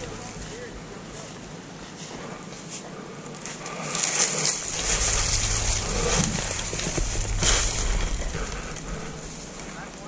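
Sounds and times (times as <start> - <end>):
footsteps crunching through dry leaves: 3.9 - 10.0
low rumble on microphone: 4.4 - 10.0.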